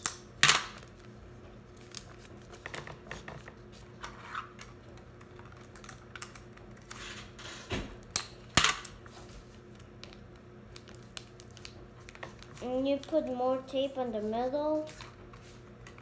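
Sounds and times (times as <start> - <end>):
paper crackling: 0.8 - 2.7, 9.1 - 13.4.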